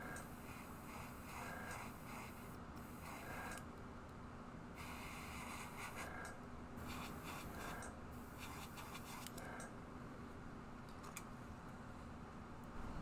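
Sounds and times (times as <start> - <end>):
airbrush hissing bursts: 0.0 - 3.6, 4.8 - 9.4
faint steady hum: 0.0 - 13.0.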